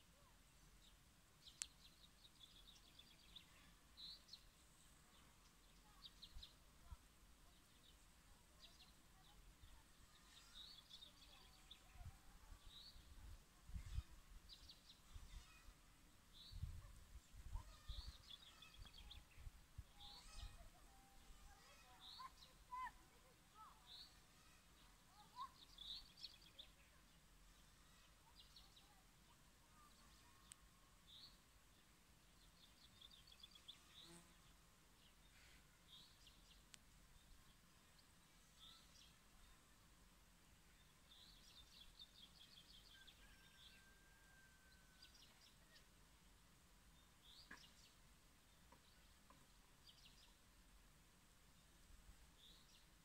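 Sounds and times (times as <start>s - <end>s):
faint birds chirping: 0.0s - 53.0s
soft outdoor hiss: 0.0s - 53.0s.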